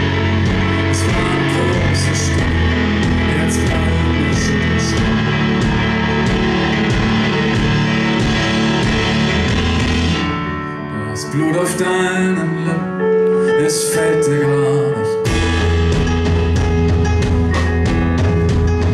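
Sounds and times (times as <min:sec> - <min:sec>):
drum kit with cymbals: 0:00.0 - 0:10.3, 0:15.3 - 0:18.9
bass: 0:00.0 - 0:18.9
piano chords: 0:00.0 - 0:18.9.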